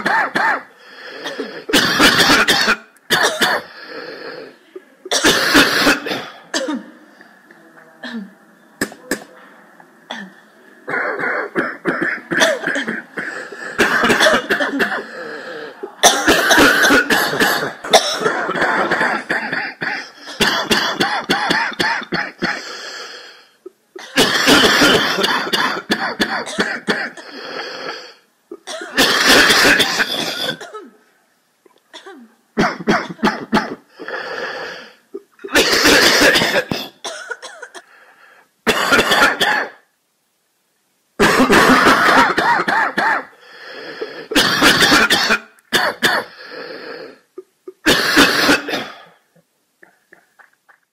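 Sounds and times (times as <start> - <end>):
many people coughing: 0.0 - 3.8, 4.7 - 7.0, 8.0 - 9.4, 10.1 - 22.7, 24.0 - 27.4, 28.5 - 31.0, 32.0 - 34.0, 35.2 - 37.9, 38.7 - 39.8, 41.2 - 43.3, 44.2 - 46.4, 47.4 - 49.2.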